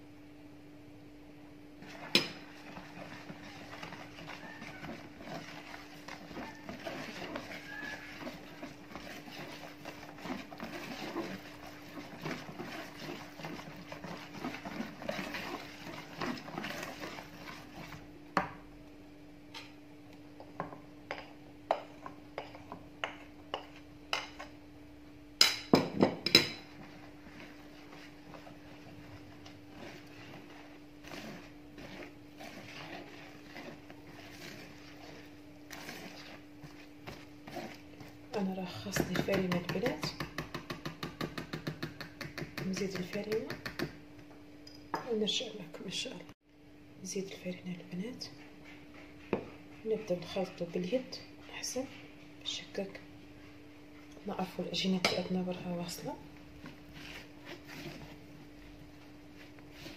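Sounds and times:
whisk beating batter in bowl: 1.8 - 18.5, 25.4 - 44.0, 55.0 - 59.9.

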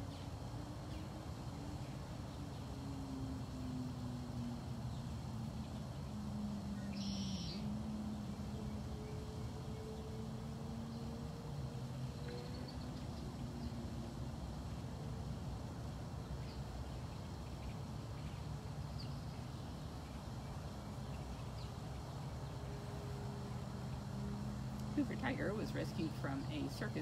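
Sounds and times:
faint hum: 0.0 - 27.0
steady low rumble: 0.0 - 27.0
bird chirps: 6.8 - 7.6.

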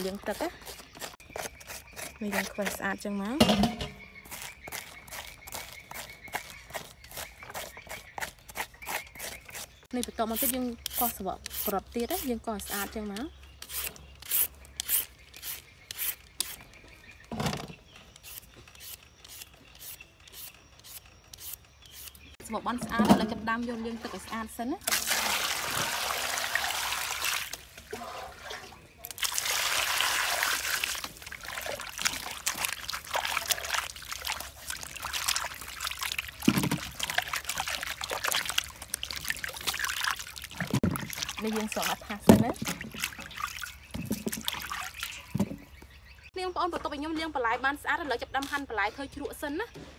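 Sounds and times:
peeler scraping vegetables: 0.0 - 3.2, 4.2 - 16.7, 18.1 - 22.4
water splashing in a metal basin: 3.4 - 4.0, 22.8 - 45.6
water pouring into basin: 24.9 - 42.0.

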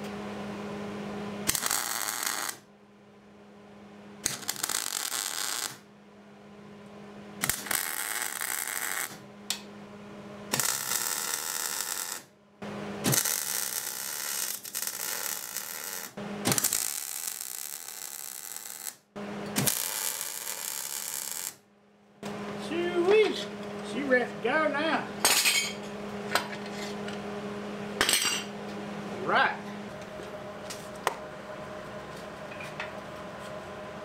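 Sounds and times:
welding arc crackling: 1.4 - 2.6, 4.2 - 5.8, 7.4 - 9.2, 10.5 - 12.3, 13.0 - 19.0, 19.6 - 21.6.

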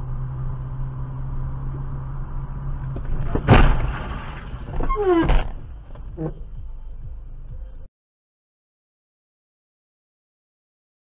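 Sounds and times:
car engine hum: 0.0 - 7.9
loud crash bang: 3.1 - 4.8.

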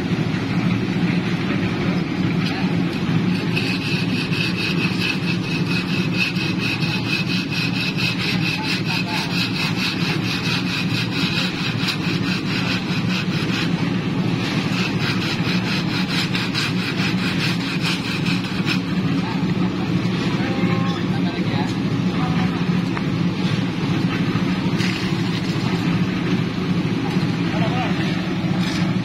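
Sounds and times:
engine running: 0.0 - 29.0
screed bar scraping wet concrete: 2.4 - 19.6, 24.7 - 26.0, 27.6 - 29.0.

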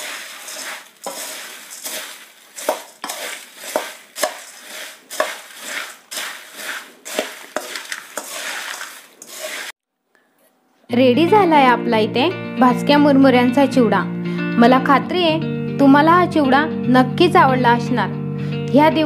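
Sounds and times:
spoon clinking and scraping bowl: 0.0 - 9.7
puffed rice rustling and crunching: 0.0 - 9.8.

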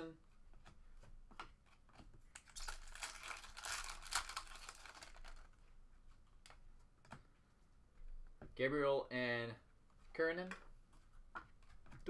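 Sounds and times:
foil wrapper crinkling and tearing: 2.4 - 5.5.

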